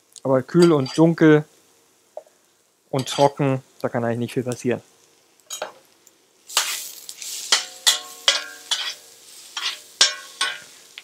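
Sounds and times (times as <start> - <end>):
onions sizzling in a frying pan: 0.0 - 11.0
utensil scraping a pan: 3.0 - 3.4, 6.5 - 10.8.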